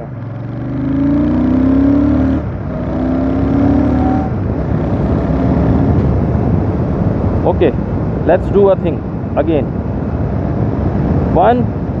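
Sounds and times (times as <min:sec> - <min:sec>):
motorcycle engine accelerating: 0:00.0 - 0:07.2.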